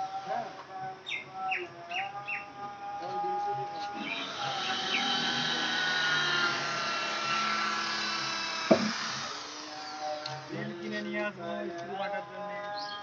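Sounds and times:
sharp knock: 8.7s - 9.0s.

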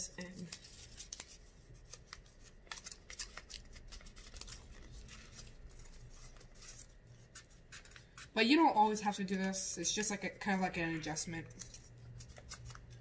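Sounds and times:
paper rustling and crackling: 0.0s - 8.4s, 11.0s - 13.0s.

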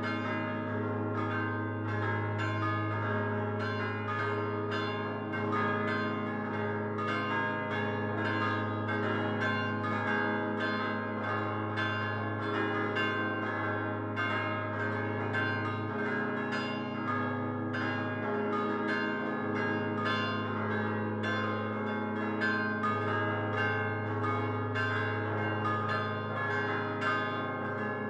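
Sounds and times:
church bells chiming: 0.0s - 28.0s.

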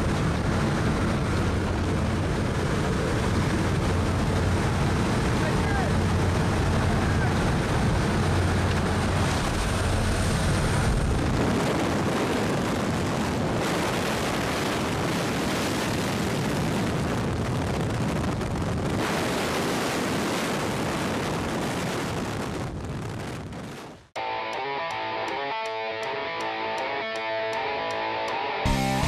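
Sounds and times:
plane engine hum: 0.0s - 16.4s
wind rushing at open door: 0.0s - 24.1s.

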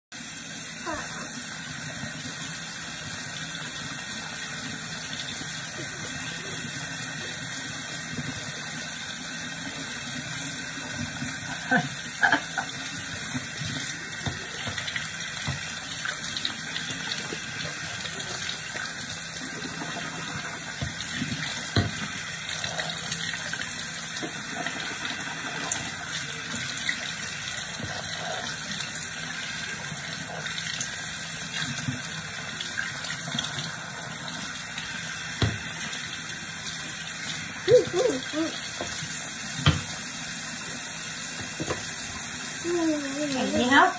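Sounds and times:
tap water running into sink: 0.2s - 43.9s.

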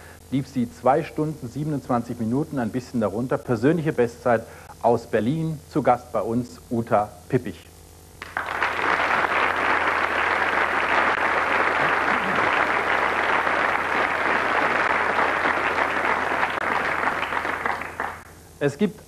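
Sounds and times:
studio audience applauding: 8.2s - 18.3s.

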